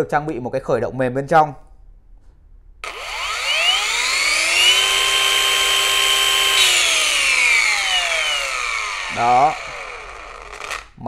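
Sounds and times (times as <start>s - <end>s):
wall chaser motor whine: 2.8s - 11.0s.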